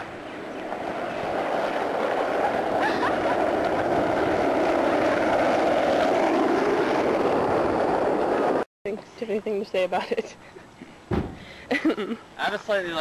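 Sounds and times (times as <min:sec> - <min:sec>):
skateboard wheels rolling on asphalt: 0:00.0 - 0:08.7.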